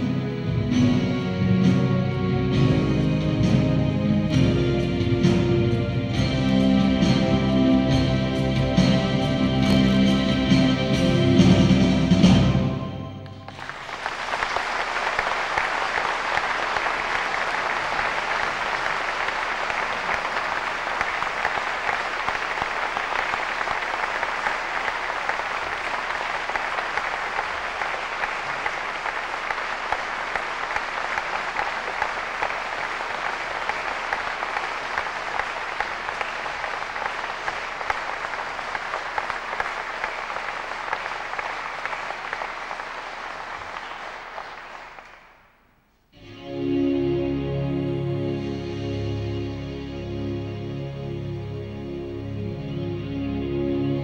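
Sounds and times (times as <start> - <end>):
audience applauding: 8.8 - 11.7, 13.3 - 45.7.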